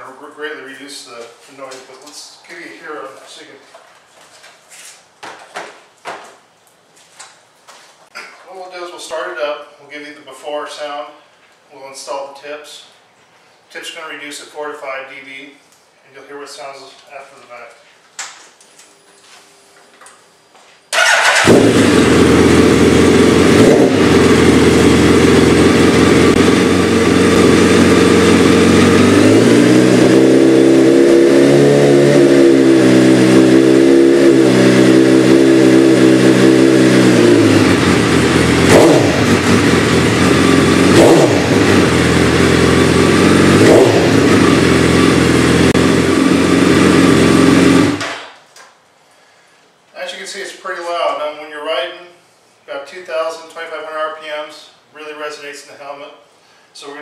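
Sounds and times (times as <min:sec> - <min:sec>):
motorcycle engine revving: 0:21.0 - 0:48.1.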